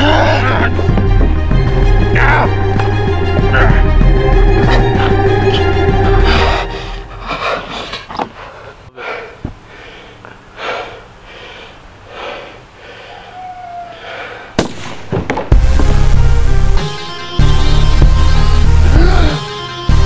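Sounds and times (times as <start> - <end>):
heavy rock music: 0.0 - 6.5, 14.6 - 20.0
man panting heavily: 3.4 - 13.4, 14.0 - 14.6
sharp hit: 14.6 - 16.4.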